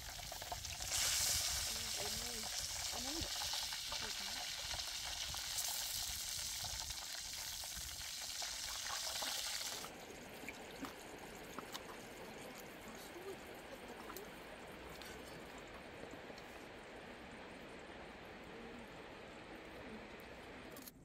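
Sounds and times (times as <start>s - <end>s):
pork sizzling in hot oil: 0.0s - 14.9s
outdoor background noise: 0.0s - 21.0s.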